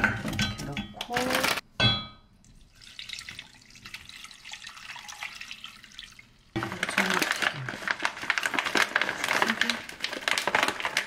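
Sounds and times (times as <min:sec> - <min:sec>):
water pouring into a pot: 0:02.4 - 0:11.0
plastic packet crinkling: 0:06.6 - 0:11.0.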